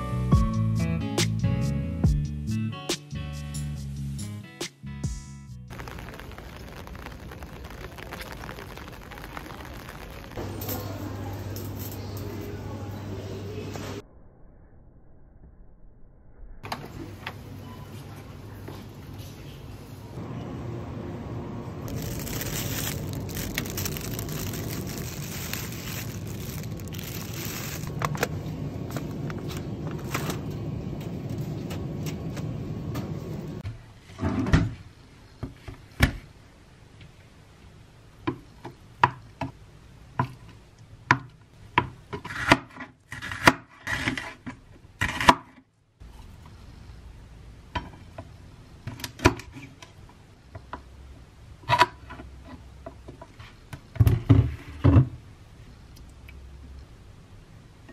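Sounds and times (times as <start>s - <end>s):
supermarket background noise: 5.7s - 14.0s, 16.6s - 34.2s.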